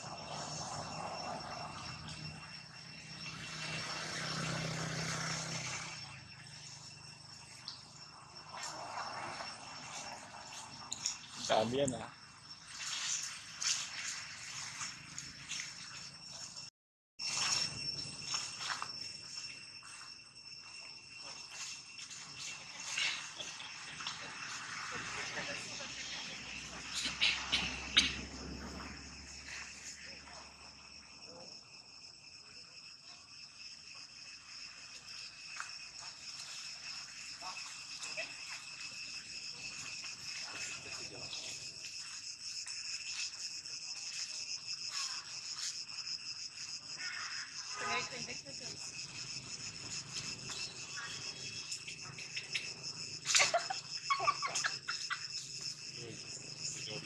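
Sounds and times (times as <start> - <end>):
insect chorus buzzing: 0.0 - 57.0
short squeaky calls: 26.2 - 28.3, 49.7 - 57.0.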